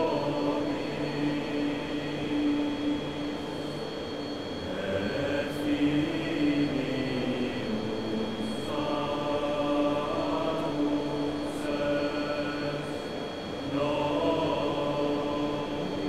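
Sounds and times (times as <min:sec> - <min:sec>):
droning chant-like tones: 0:00.0 - 0:16.0
high-pitched hum: 0:00.0 - 0:16.0.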